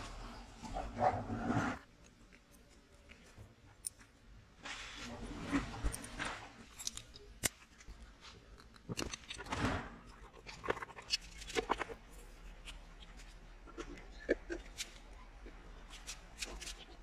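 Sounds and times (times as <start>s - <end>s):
metal parts clicking: 5.9s - 11.9s.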